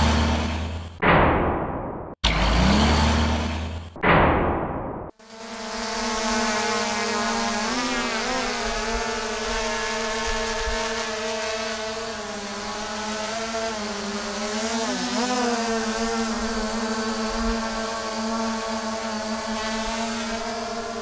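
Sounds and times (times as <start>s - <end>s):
steady engine-like hum: 0.0s - 1.0s, 2.2s - 4.0s.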